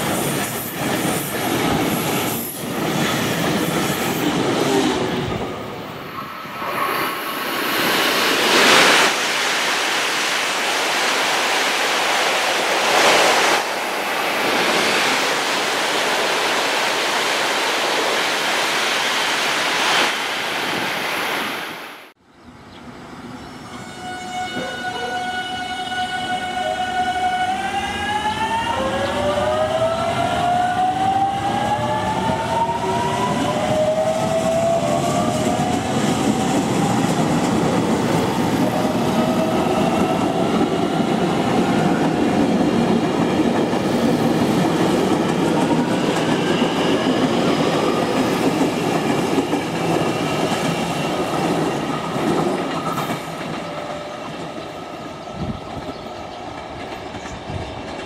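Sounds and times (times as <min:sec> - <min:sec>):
wheels rumbling on rail: 0:28.3 - 0:58.0.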